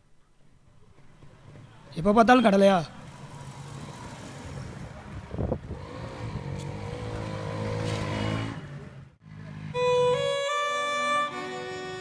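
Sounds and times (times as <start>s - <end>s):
motorcycle engine accelerating: 5.4s - 9.8s.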